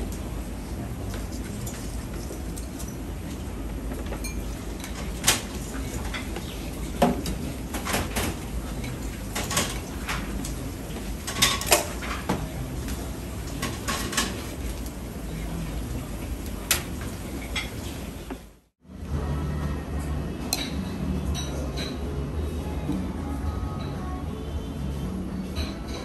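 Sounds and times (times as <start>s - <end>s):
steady background hum: 0.0s - 26.0s
dishes and cutlery clinking: 1.1s - 14.8s, 16.6s - 18.0s, 20.5s - 22.1s.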